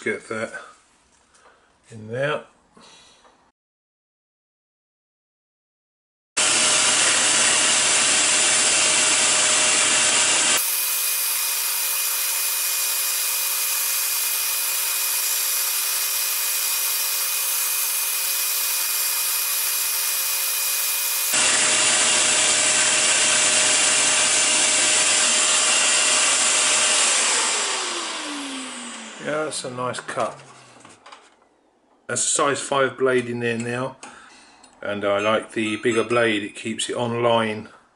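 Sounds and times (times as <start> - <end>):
scroll saw cutting plywood: 6.4 - 30.5.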